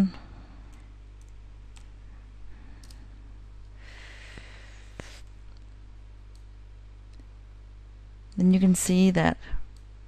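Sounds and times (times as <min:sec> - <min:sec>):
low electrical hum: 0:00.0 - 0:10.0
soft hiss: 0:00.0 - 0:10.0
computer keystrokes: 0:00.7 - 0:02.0, 0:02.8 - 0:03.0.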